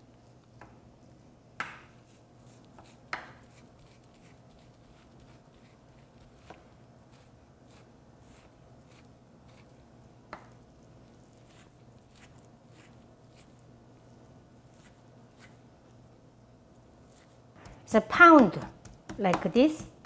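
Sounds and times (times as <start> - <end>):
knife chopping on wooden board: 2.8 - 3.6.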